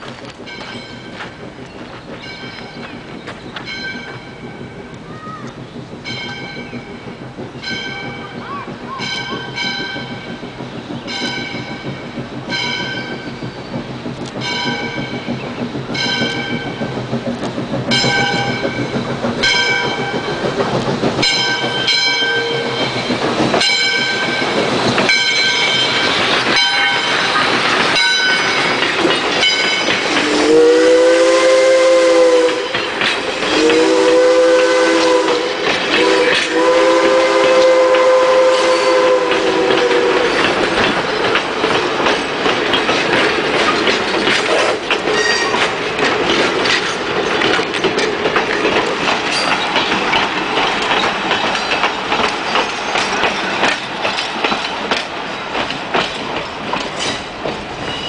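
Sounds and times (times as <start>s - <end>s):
passing train noise: 0.0s - 58.0s
locomotive bell ringing: 0.4s - 1.4s, 2.2s - 5.1s, 6.0s - 10.4s, 11.0s - 13.4s, 14.4s - 16.9s, 17.9s - 30.2s, 49.2s - 55.6s.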